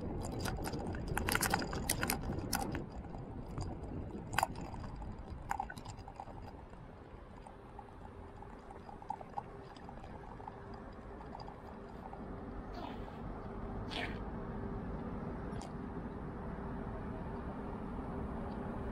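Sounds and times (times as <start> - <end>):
faint steady hum: 0.0 - 18.9
road and wind rumble: 0.0 - 18.9
clicks and rattles: 0.1 - 6.6.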